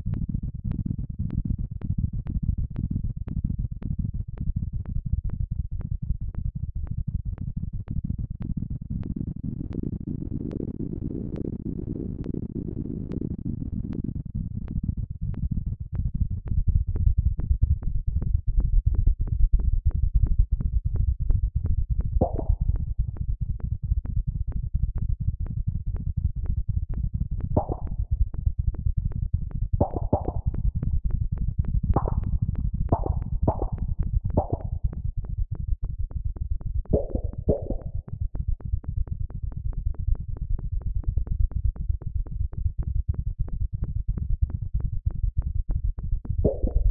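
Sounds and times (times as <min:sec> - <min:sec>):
short higher electronic tones: 0:22.2 - 0:22.6, 0:27.6 - 0:27.9, 0:29.8 - 0:30.4, 0:32.9 - 0:33.8, 0:34.4 - 0:34.7, 0:37.0 - 0:38.0
low electronic pulses: 0:22.2 - 0:22.8, 0:27.6 - 0:28.2, 0:29.8 - 0:30.8, 0:31.9 - 0:34.9, 0:36.9 - 0:38.2, 0:46.4 - 0:46.9.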